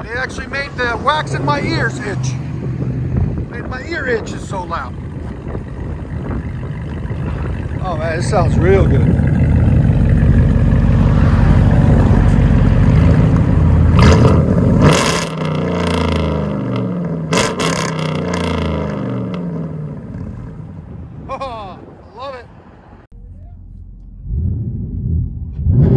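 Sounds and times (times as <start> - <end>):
car engine revving: 0.3 - 20.7, 23.8 - 25.9.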